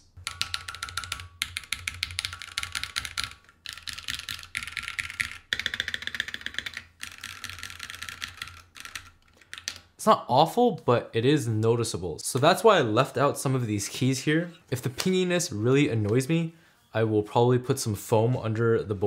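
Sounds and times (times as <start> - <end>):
fast mechanical keyboard typing: 0.2 - 9.8.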